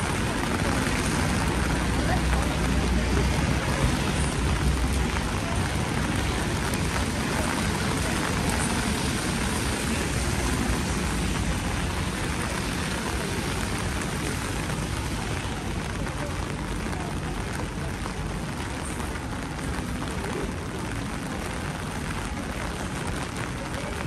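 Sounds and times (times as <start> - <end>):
heavy rain on wet street: 0.0 - 24.0
low rumble of road traffic: 0.0 - 24.0.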